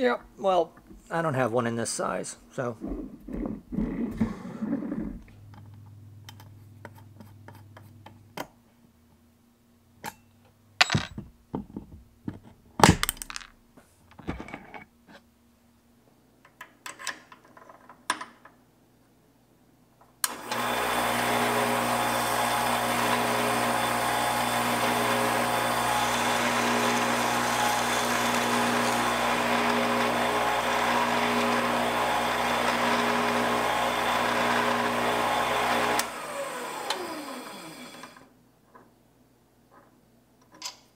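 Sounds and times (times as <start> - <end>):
metal parts clicking and knocking: 10.8 - 11.3, 12.8 - 13.6
electric drill running: 20.3 - 38.3.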